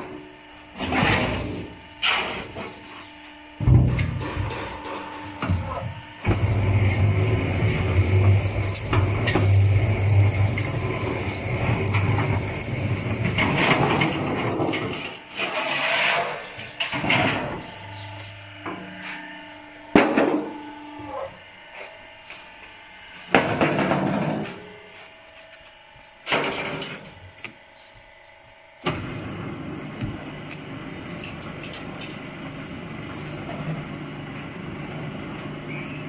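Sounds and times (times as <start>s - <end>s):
electric motor hum: 0.0s - 36.0s
metal clanks and knocks: 3.6s - 5.9s
metal drum scraping: 6.3s - 16.4s.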